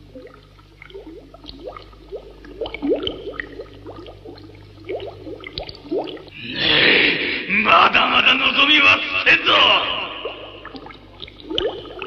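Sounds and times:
bubbling gurgling slime: 0.0 - 6.8, 10.1 - 12.0
low steady hum: 0.0 - 12.0.

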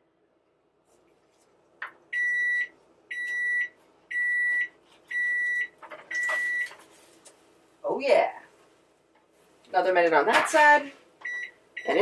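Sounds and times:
high-pitched appliance beeps: 2.1 - 6.8, 11.2 - 12.0.

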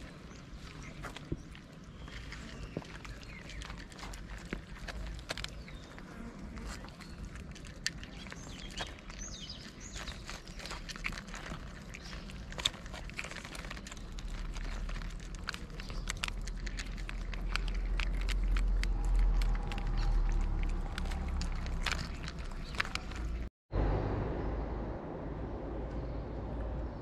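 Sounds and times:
cats chewing and licking: 0.0 - 23.5
low rumble: 11.3 - 27.0.

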